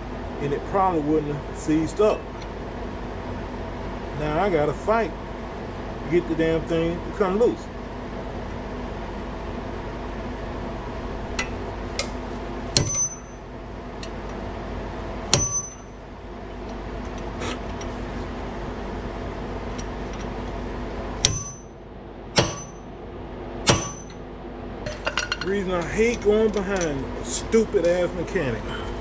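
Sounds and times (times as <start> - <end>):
steady low hum: 0.0 - 29.0
hammer striking steel: 11.4 - 13.4, 15.3 - 16.0, 21.2 - 21.8, 22.4 - 22.9, 23.6 - 24.2.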